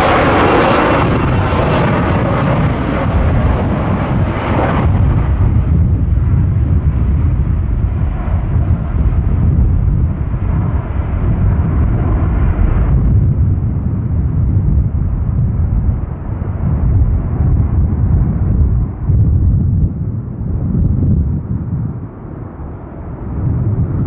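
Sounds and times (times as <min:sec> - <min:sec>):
jet engine rumble: 0:00.0 - 0:24.0.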